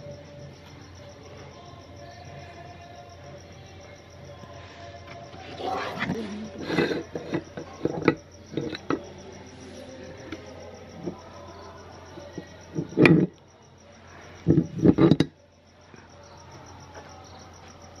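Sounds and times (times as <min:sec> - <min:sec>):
metal clinks and knocks: 0:05.9 - 0:09.2, 0:12.2 - 0:13.4, 0:14.4 - 0:15.4.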